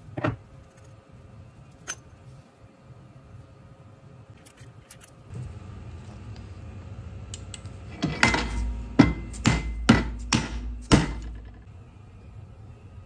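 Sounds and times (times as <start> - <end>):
mallet striking metal: 8.2 - 11.6.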